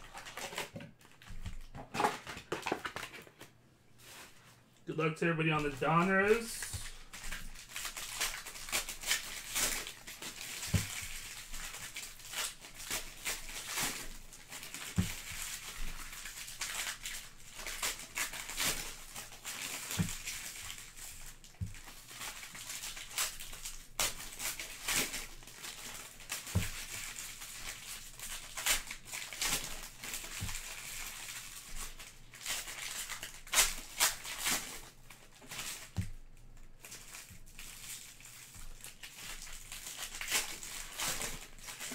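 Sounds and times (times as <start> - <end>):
foil wrappers crinkling and tearing: 0.0 - 4.4, 5.3 - 41.9
cards handled and set down: 0.4 - 4.2.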